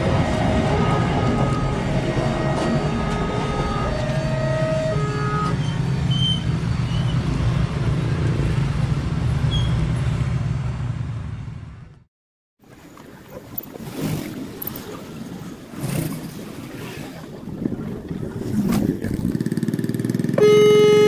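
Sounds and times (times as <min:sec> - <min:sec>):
motorcycle engines rumbling: 0:18.0 - 0:21.0.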